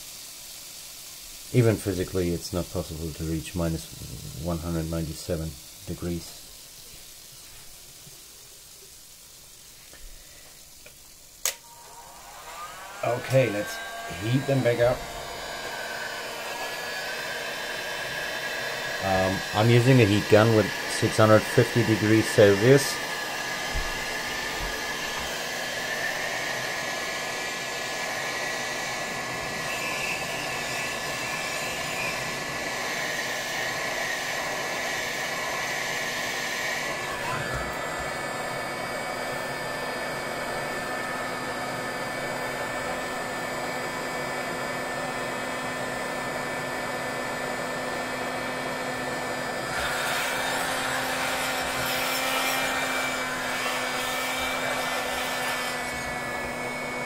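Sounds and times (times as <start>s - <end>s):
heat gun blowing hot air: 0.0s - 57.0s.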